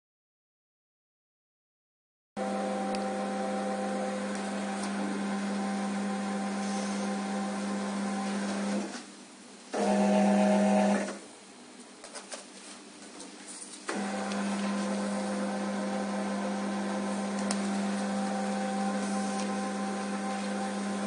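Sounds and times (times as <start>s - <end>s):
conveyor motor humming: 2.4s - 9.0s, 13.9s - 21.0s.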